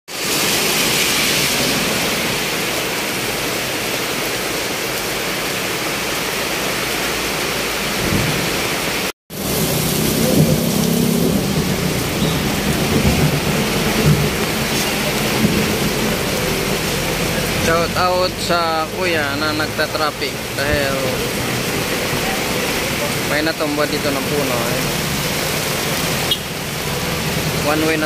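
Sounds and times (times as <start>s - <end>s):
heavy rain pouring: 0.1s - 28.0s
vehicles driving on wet road: 0.1s - 28.0s.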